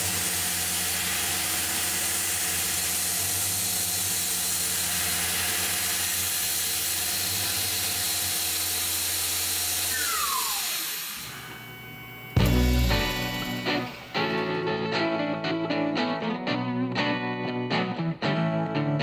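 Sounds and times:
mill spindle cutting metal: 0.0 - 14.4
spindle spinning down whine: 9.7 - 14.7
machine hum: 9.7 - 15.1.

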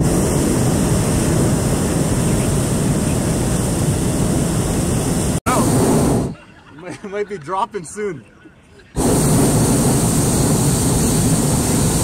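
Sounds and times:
propane burner roaring: 0.0 - 6.4, 9.0 - 12.0.

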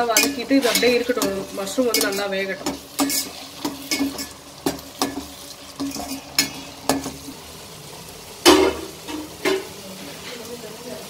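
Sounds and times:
spoon clinking against steel pot: 0.0 - 5.2
faint sizzle of frying: 0.0 - 11.0.

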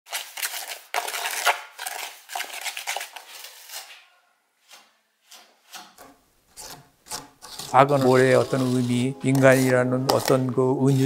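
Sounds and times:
sand scooped and poured: 7.5 - 11.0.

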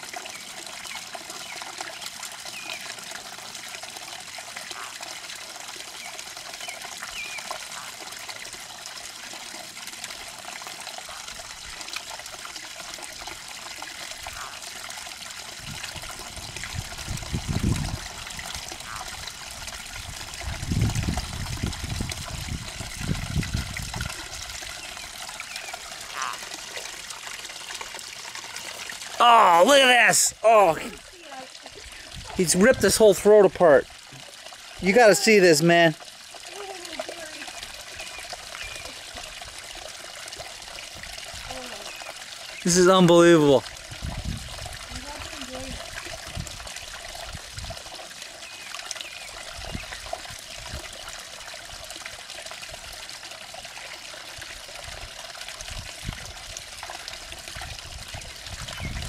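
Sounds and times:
steady outdoor hiss: 21.8 - 55.4.

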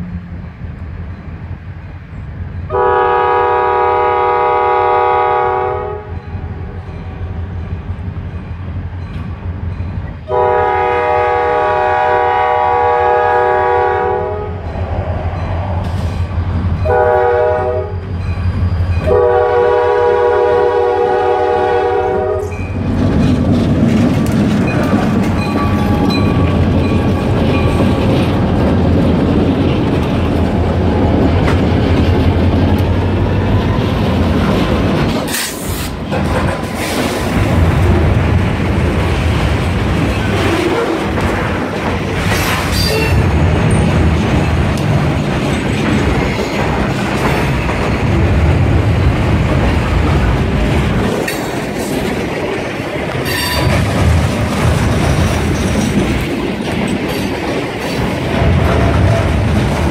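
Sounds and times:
diesel locomotive engine running: 0.0 - 59.9
locomotive air horn: 2.7 - 6.2, 10.3 - 14.6, 16.8 - 18.1, 19.0 - 22.6
train wheels clattering on rails: 6.1 - 12.6, 14.6 - 59.9.

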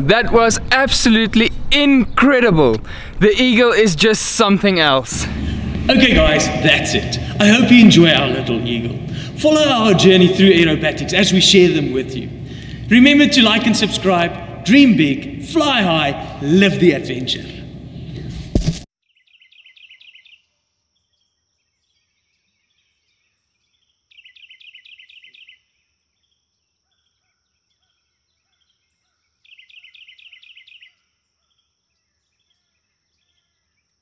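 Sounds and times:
bird trilling chirps: 19.1 - 20.4, 24.1 - 25.7, 29.4 - 31.0
faint high-pitched insect whine: 19.1 - 34.0.

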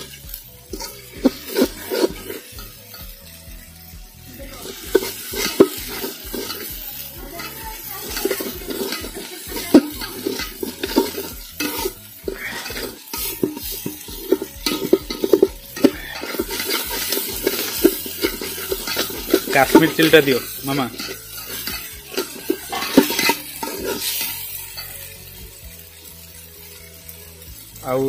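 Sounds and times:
metal spatula scraping a pot: 0.0 - 26.7
food sizzling in oil: 0.0 - 28.0.

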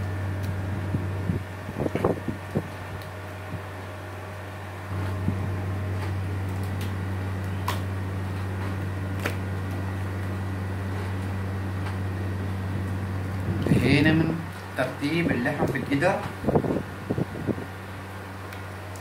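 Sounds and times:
low mechanical hum: 0.0 - 19.0
wet slaps of meat: 6.5 - 7.9, 9.1 - 9.8.

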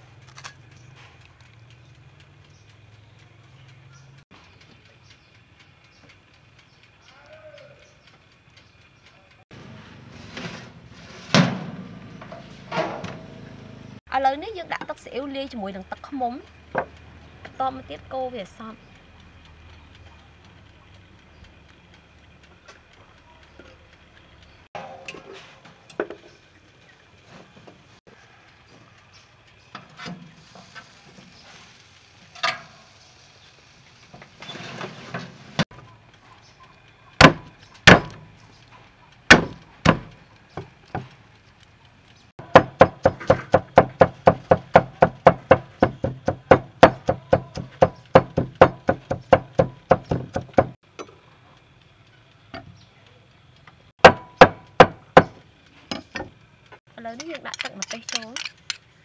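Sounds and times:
cleaver chopping on wooden board: 37.2 - 38.2, 39.3 - 40.1, 42.4 - 50.8, 54.0 - 55.4.

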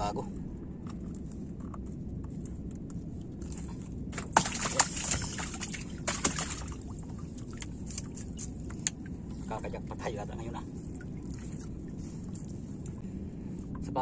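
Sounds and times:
low background rumble: 0.0 - 14.0
water splashing against boat: 3.4 - 13.0.

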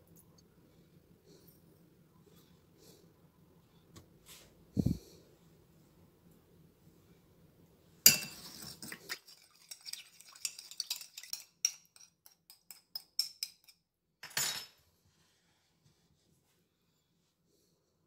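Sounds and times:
spoon clinking against glass bowl: 8.1 - 13.8.

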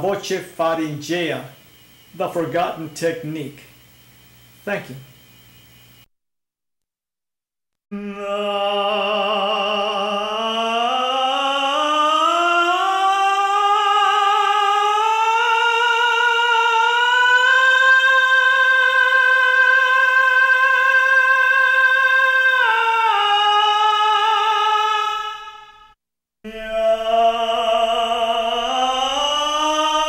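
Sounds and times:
tenor singing with vibrato: 7.9 - 25.9, 26.5 - 30.0.

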